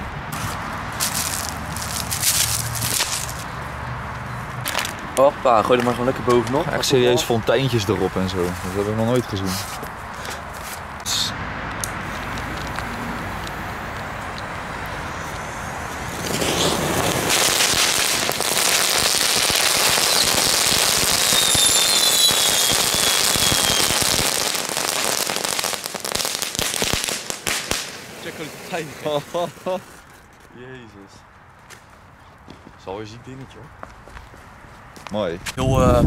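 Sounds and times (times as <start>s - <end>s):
fireworks hissing and crackling: 0.3s - 3.7s, 4.6s - 30.4s
falling whistle: 21.2s - 24.0s.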